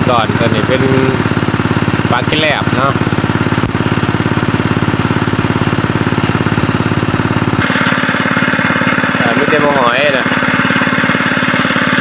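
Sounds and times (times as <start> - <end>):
small engine chugging: 0.0 - 12.0.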